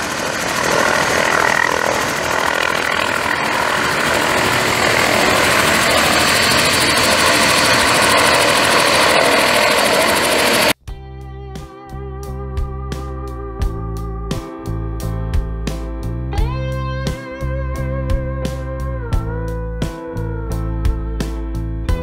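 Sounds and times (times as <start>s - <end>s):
helicopter hovering: 0.0s - 10.8s.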